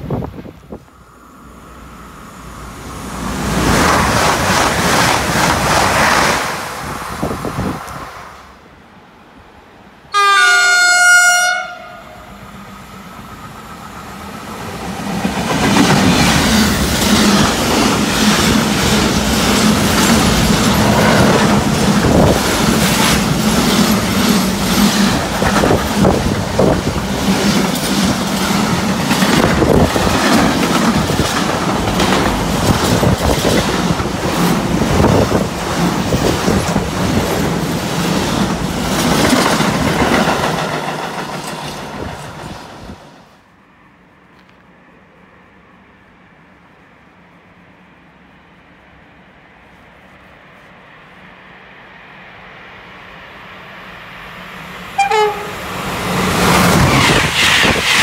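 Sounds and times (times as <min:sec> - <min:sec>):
freight train rumbling and rattling: 0:00.0 - 0:08.6, 0:11.5 - 0:43.4, 0:46.4 - 0:58.0
train horn blast: 0:10.1 - 0:12.2, 0:54.9 - 0:55.7.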